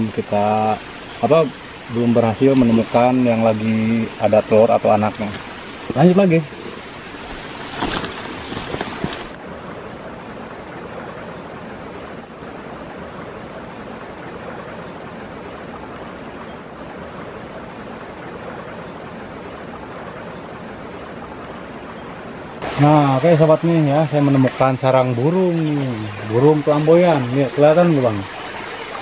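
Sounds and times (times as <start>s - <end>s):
steady hiss-like noise: 0.0s - 29.0s
footsteps in undergrowth: 6.8s - 9.4s.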